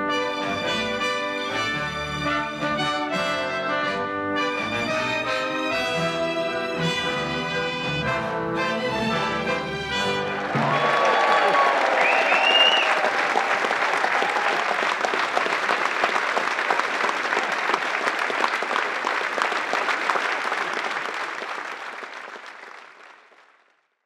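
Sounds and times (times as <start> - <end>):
audience applauding: 10.2 - 23.9.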